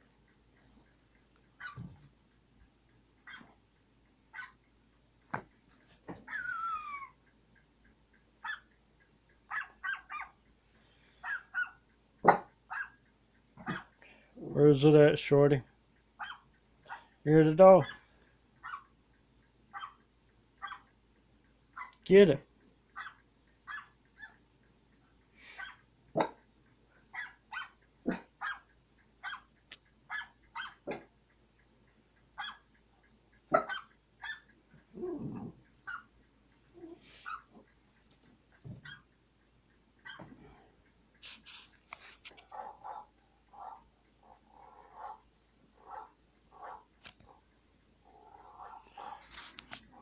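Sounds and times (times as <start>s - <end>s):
small dog barking: 1.6s - 1.9s, 3.3s - 3.5s, 4.4s - 4.6s, 8.4s - 8.7s, 9.5s - 10.4s, 11.2s - 13.0s, 16.2s - 17.0s, 18.6s - 18.9s, 19.7s - 20.0s, 20.6s - 20.9s, 23.0s - 24.4s, 25.6s - 26.4s, 27.1s - 29.5s, 30.1s - 31.1s, 32.4s - 32.7s, 33.5s - 36.0s, 38.8s - 39.0s, 42.5s - 43.8s, 45.8s - 46.9s.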